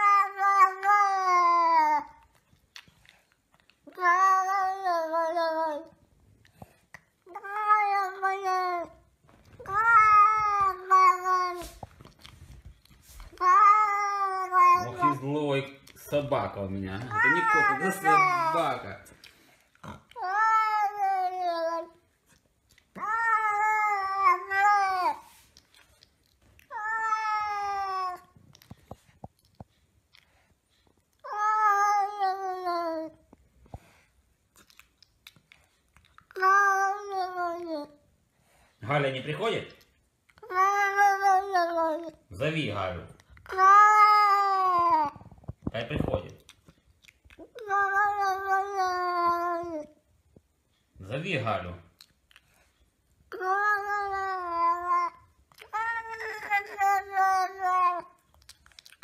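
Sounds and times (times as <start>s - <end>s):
cat yowling: 0.0s - 2.1s, 3.9s - 5.9s, 7.3s - 9.0s, 9.6s - 11.8s, 13.4s - 15.3s, 17.0s - 18.8s, 20.2s - 21.9s, 23.0s - 25.2s, 26.6s - 28.4s, 53.4s - 58.2s.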